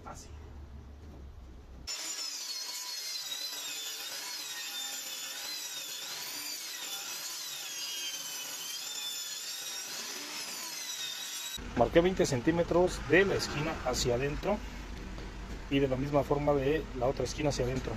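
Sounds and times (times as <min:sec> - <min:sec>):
table saw cutting plywood: 0:01.9 - 0:11.6.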